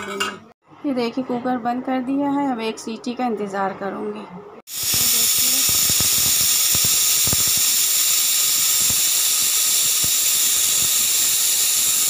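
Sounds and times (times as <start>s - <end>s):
pressure cooker whistling: 4.7s - 12.0s.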